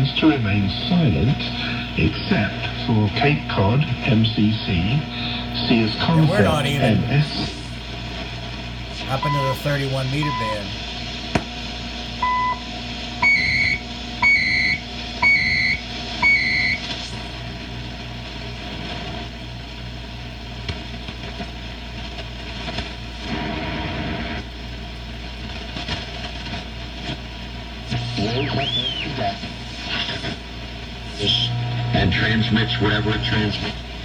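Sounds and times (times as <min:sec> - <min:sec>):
radio static and hum: 0:05.6 - 0:07.8, 0:08.9 - 0:10.8
radio tone: 0:06.0 - 0:07.8, 0:09.0 - 0:10.8
radio warbling: 0:06.0 - 0:07.8, 0:09.0 - 0:10.8
short radio beeps: 0:09.1 - 0:10.7.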